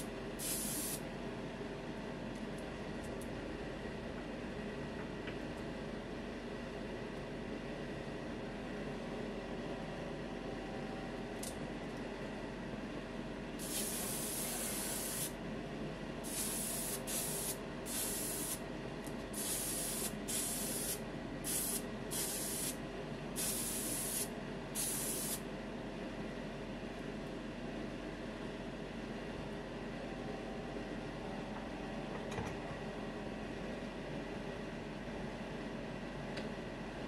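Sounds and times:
airbrush spraying hiss: 0.4s - 1.0s, 13.6s - 15.4s, 16.3s - 18.6s, 19.4s - 22.8s, 23.4s - 25.4s.

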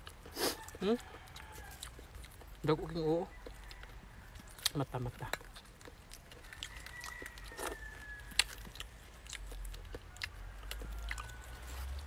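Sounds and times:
chewing and mouth clicks: 0.0s - 12.0s.

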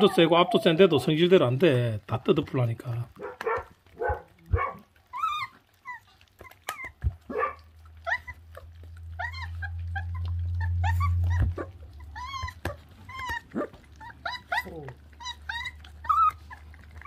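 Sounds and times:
puppies whining and yipping: 0.0s - 1.8s, 3.2s - 17.0s
low steady hum: 7.1s - 14.3s.

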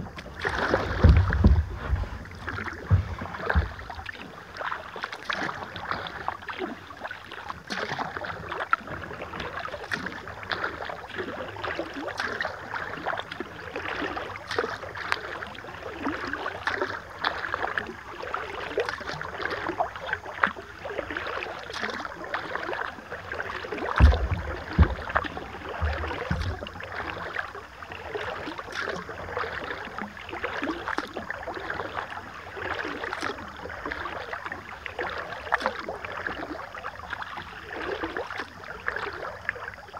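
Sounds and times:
paddle splashing in water: 0.0s - 39.9s
low thumps: 0.7s - 4.1s, 24.0s - 26.8s.

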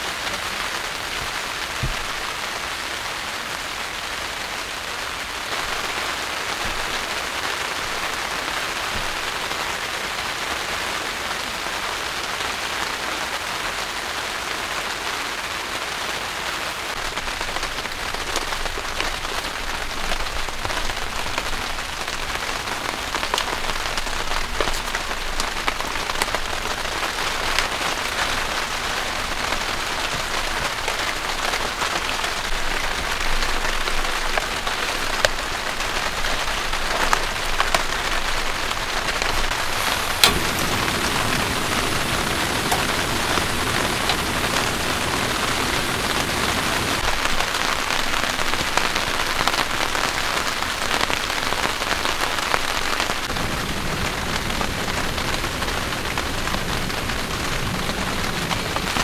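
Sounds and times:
heavy rain on tent: 0.0s - 59.0s
raindrop ticks: 29.4s - 50.1s.

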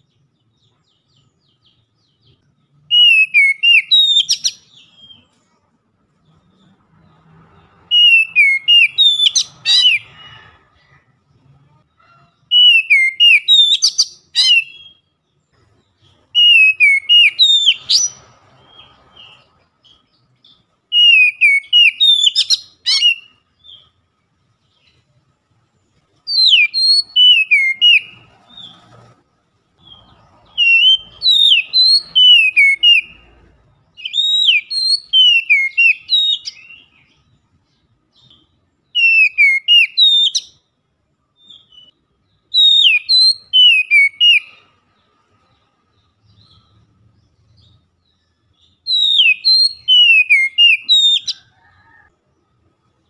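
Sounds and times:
bird singing whistles: 2.9s - 5.2s, 7.9s - 10.2s, 12.5s - 15.1s, 16.3s - 23.8s, 26.3s - 28.7s, 29.8s - 33.3s, 34.0s - 37.3s, 38.1s - 40.6s, 41.4s - 44.7s, 48.6s - 51.5s.

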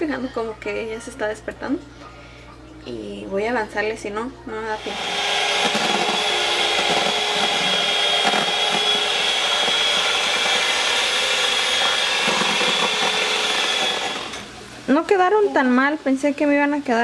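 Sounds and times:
electric hand mixer whining: 4.8s - 14.6s.

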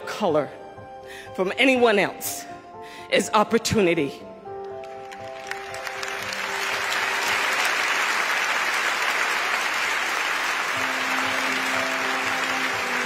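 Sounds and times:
large audience applauding: 4.8s - 13.0s.

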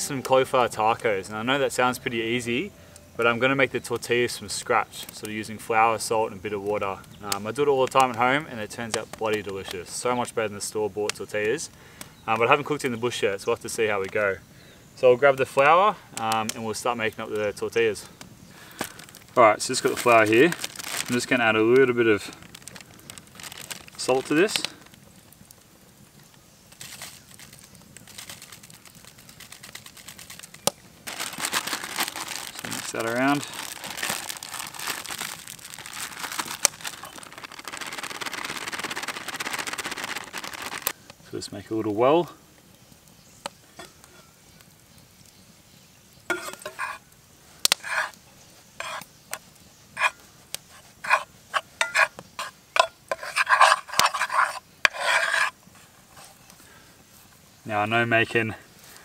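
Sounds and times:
plastic bag crinkling: 18.6s - 25.0s, 26.7s - 41.0s
utensil scraping frying pan: 46.3s - 47.1s, 47.7s - 49.1s, 50.0s - 56.4s.

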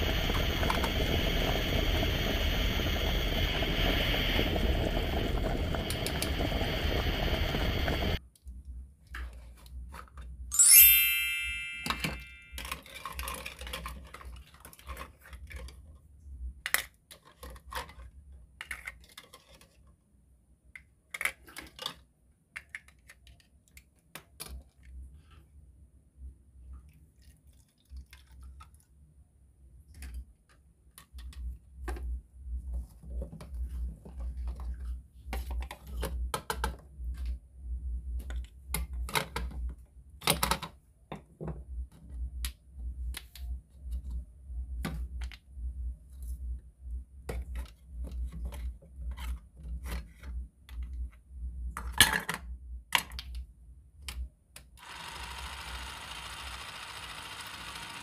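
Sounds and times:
toy hand mixer whirring: 0.0s - 8.2s, 54.8s - 58.0s
toy kitchen pieces clicking: 11.1s - 15.8s, 16.6s - 19.9s, 20.8s - 24.9s.

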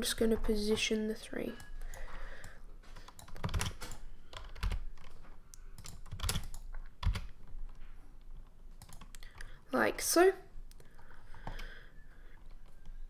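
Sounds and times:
computer keyboard key presses: 3.0s - 5.2s, 5.8s - 7.4s, 8.8s - 9.5s.

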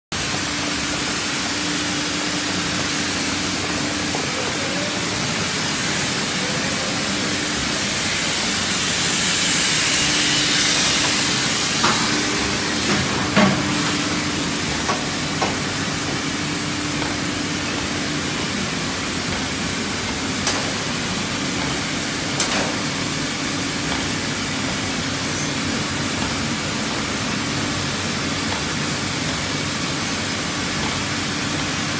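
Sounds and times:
loud hiss: 0.7s - 13.0s.

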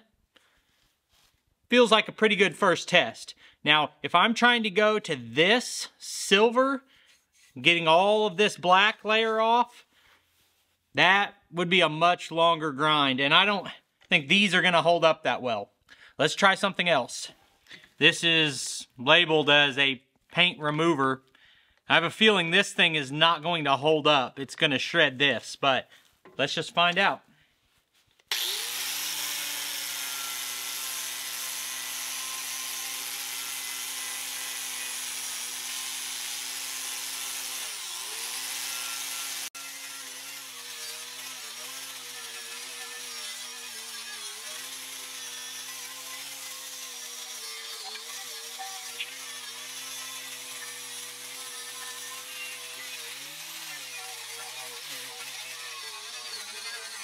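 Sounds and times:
angle grinder grinding metal: 28.2s - 57.0s.

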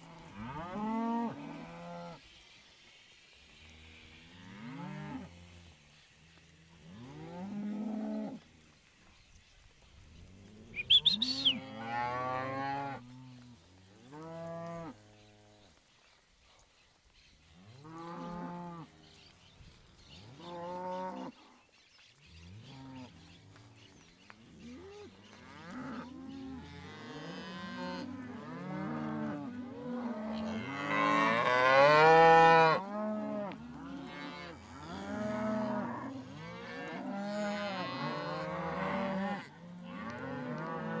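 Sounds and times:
cows mooing: 10.6s - 13.4s, 24.6s - 41.0s.

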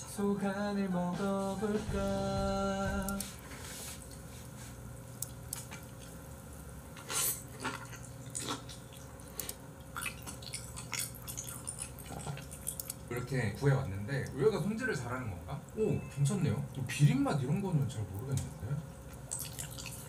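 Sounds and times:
wet chewing sounds: 3.0s - 14.6s, 16.6s - 20.0s.

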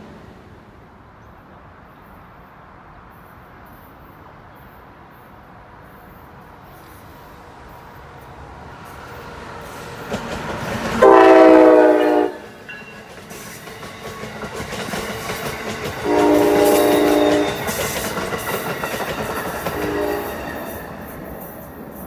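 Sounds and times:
train passing with rail clatter: 0.0s - 22.0s
train horn blasts: 11.0s - 12.6s, 16.0s - 17.8s, 19.6s - 21.0s.

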